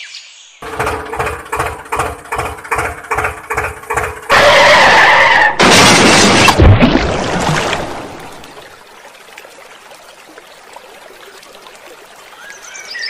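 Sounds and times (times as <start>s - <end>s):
water sloshing: 6.0s - 12.4s.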